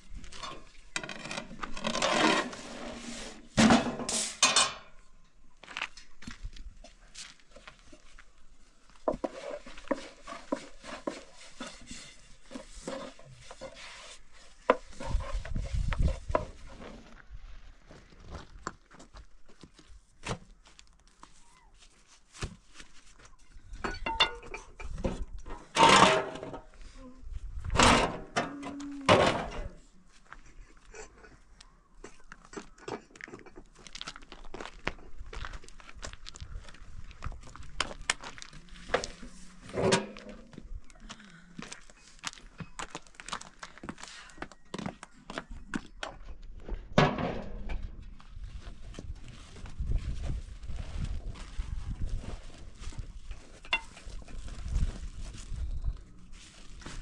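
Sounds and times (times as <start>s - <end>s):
knocks and clinks of handled objects: 23.8s - 25.0s.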